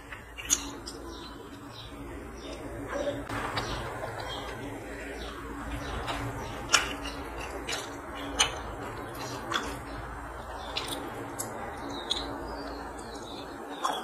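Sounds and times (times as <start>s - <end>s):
wet chewing and smacking: 0.0s - 1.6s, 5.8s - 14.0s
steady low hum: 0.0s - 14.0s.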